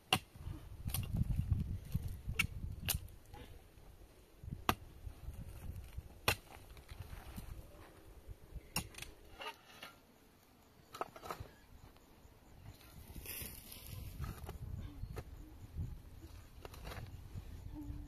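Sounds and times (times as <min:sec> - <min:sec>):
pick striking stony soil: 0:00.0 - 0:03.1, 0:04.5 - 0:07.6.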